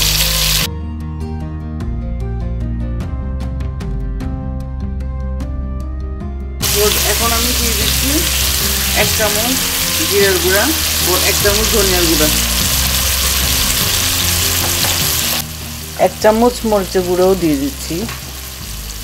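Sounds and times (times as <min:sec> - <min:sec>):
onions sizzling in hot oil: 0:00.0 - 0:00.7, 0:06.6 - 0:19.0.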